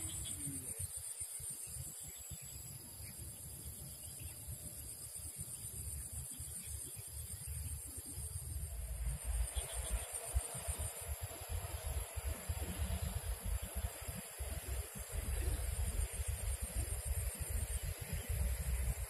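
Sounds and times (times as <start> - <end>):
insects chirring: 0.0 - 19.0
low uneven rumble: 7.5 - 19.0.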